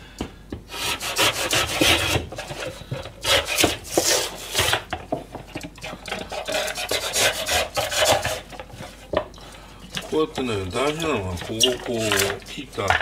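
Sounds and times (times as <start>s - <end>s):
knife cutting paper carton: 0.8s - 4.9s, 6.2s - 8.5s
paperboard crackling: 10.0s - 13.0s.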